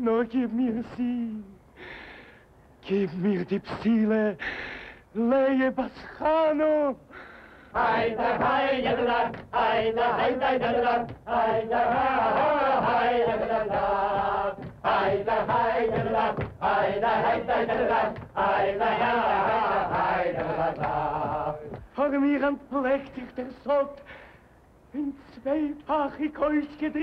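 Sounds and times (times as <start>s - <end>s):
men chanting and singing: 5.1s - 24.2s.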